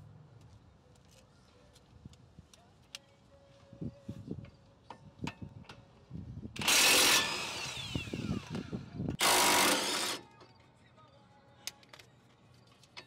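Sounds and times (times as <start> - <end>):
motor whine spinning down: 6.7 - 8.9.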